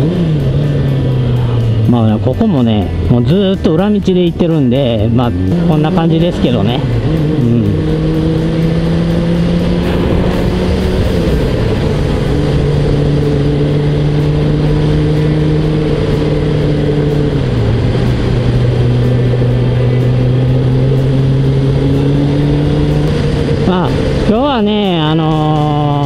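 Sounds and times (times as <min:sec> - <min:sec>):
motorcycle engine cruising: 0:00.0 - 0:26.0
wind rush: 0:06.9 - 0:19.8.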